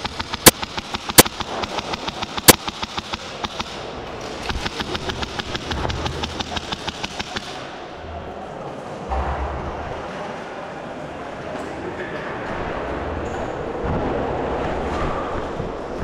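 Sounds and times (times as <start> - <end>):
airsoft guns firing: 0.0 - 7.7.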